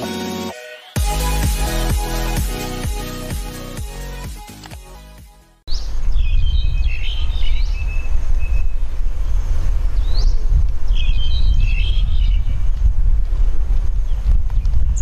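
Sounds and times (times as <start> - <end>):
birds chirping and whistling: 5.7 - 9.4, 10.0 - 12.6, 14.1 - 15.0.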